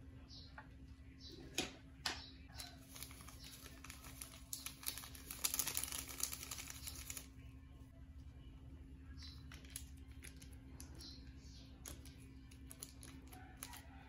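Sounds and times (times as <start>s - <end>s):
faint steady hum: 0.0s - 14.0s
seasoning sachet crinkling: 2.6s - 7.3s, 9.4s - 11.0s, 11.8s - 13.9s.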